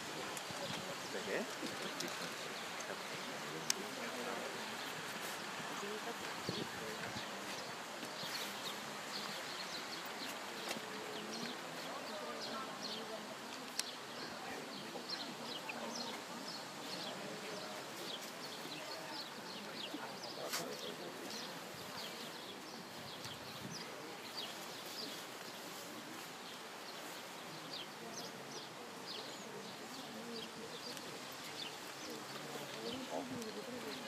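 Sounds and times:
murmur of voices: 0.0 - 34.0
small birds chirping: 0.0 - 34.0.

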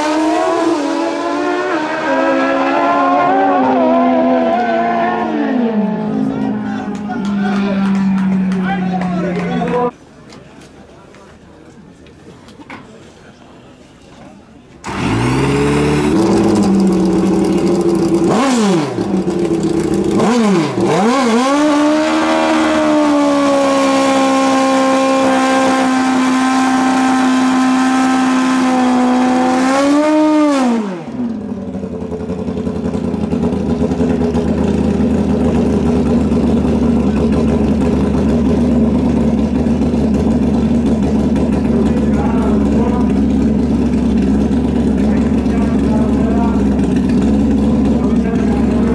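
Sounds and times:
drag-racing motorcycle engine revving: 0.0 - 9.9, 14.8 - 48.9
rear tyre spinning: 14.8 - 29.6, 31.1 - 48.9.

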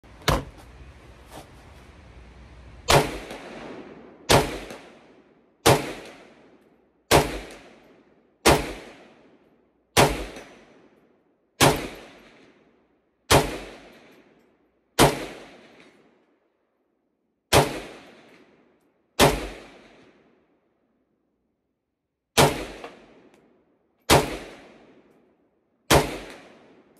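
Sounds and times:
rifle shots with echo: 2.9 - 9.4, 10.0 - 11.0, 11.6 - 12.7, 13.3 - 14.3, 15.0 - 16.1, 17.5 - 18.6, 19.2 - 20.3, 22.4 - 23.3, 24.1 - 25.1, 25.9 - 26.9.

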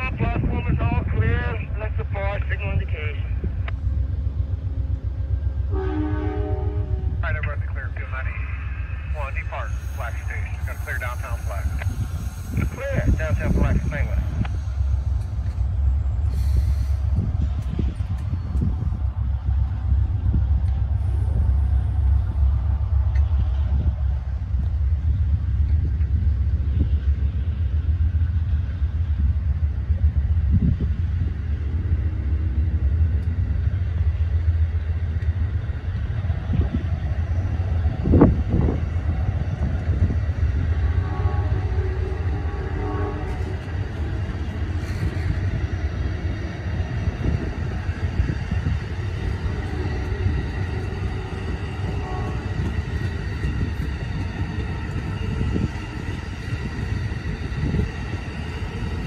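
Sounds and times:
train wheels rumbling on rails: 0.0 - 59.0
train clunks: 9.8 - 27.0, 34.8 - 59.0.

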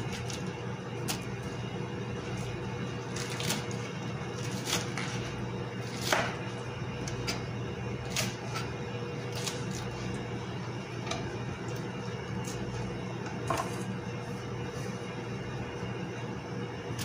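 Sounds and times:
steady low hum: 0.0 - 17.0
knife cutting lettuce on board: 3.1 - 6.4.

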